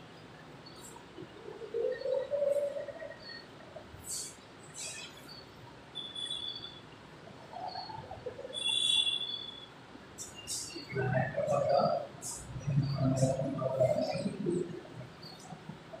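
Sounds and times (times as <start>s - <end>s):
birds chirping: 7.5s - 16.0s.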